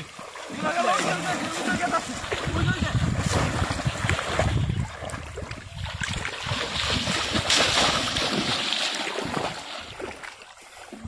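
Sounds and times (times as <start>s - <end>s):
water splashing and sloshing: 0.0s - 11.0s.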